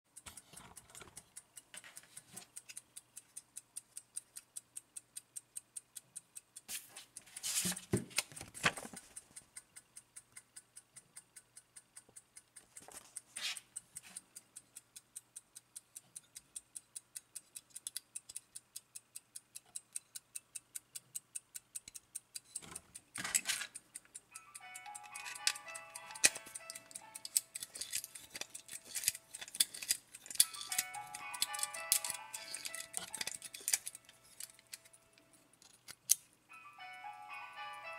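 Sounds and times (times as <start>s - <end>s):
clock ticking fast: 0.1s - 35.2s
rustling from handling: 6.7s - 7.9s.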